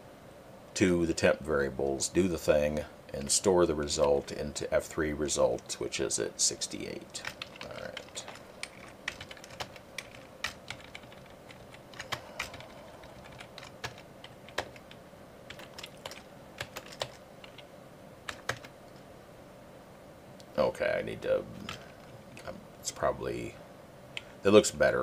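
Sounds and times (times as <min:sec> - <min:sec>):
typing on computer keyboard: 0:07.1 - 0:17.7, 0:18.3 - 0:18.7.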